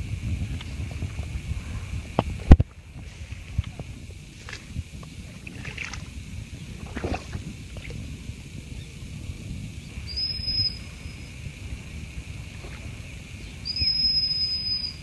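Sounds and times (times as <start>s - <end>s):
wind rumbling on microphone: 0.0s - 15.0s
footsteps splashing through water: 5.4s - 6.1s, 6.8s - 7.9s
high whistle: 10.0s - 11.3s, 13.6s - 15.0s.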